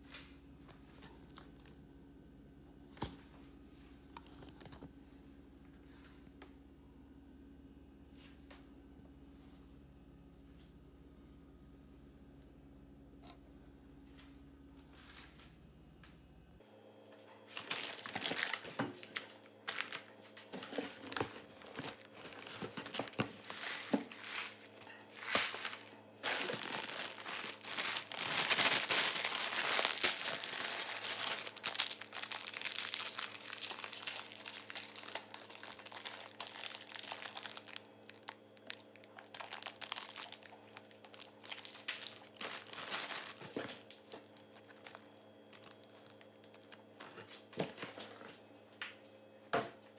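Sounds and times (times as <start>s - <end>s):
plastic packaging crinkling: 17.5s - 48.3s.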